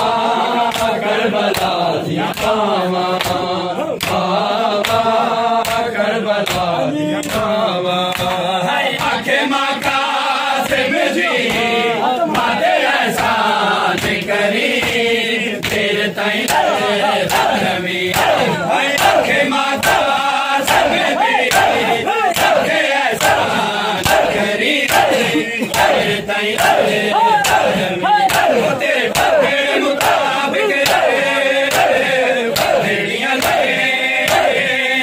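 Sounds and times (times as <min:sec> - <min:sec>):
men chanting in unison: 0:00.0 - 0:35.0
hands slapping chests: 0:00.7 - 0:09.2, 0:10.6 - 0:12.6, 0:13.2 - 0:34.6.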